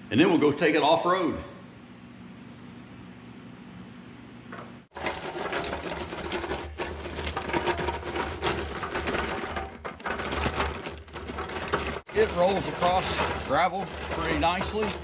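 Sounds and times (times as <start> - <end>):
floor jack rolling on gravel: 4.9 - 15.0.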